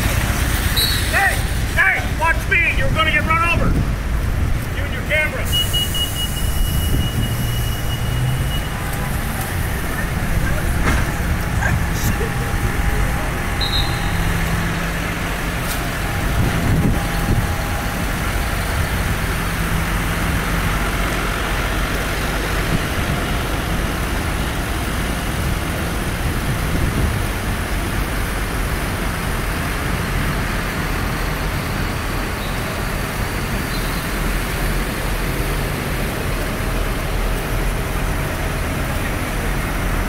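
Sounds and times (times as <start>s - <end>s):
tractor diesel engines humming: 0.0s - 40.0s.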